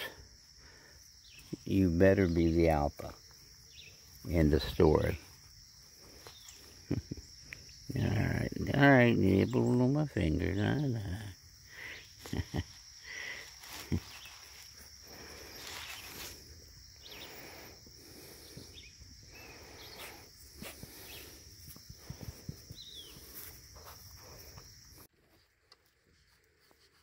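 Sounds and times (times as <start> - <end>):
high insect drone: 0.0 - 25.1
puppies rustling in leaves: 13.3 - 16.6.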